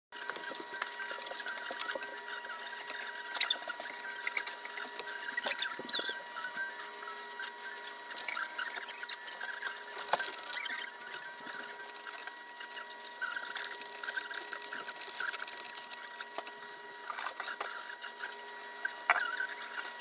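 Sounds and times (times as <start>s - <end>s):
wood-burning pen crackling on wood: 7.0s - 20.0s.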